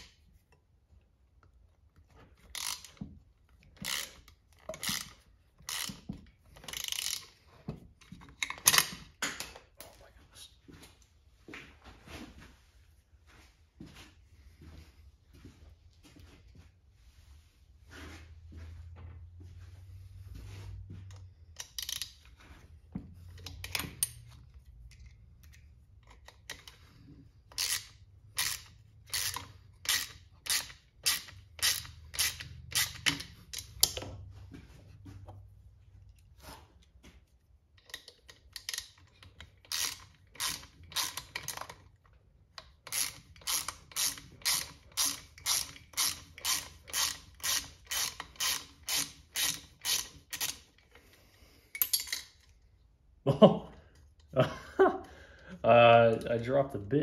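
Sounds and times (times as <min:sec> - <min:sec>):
hand ratchet clicking: 0:02.4 - 0:07.4, 0:21.1 - 0:22.4, 0:23.3 - 0:26.8, 0:27.4 - 0:34.1, 0:37.8 - 0:42.0, 0:42.6 - 0:51.1.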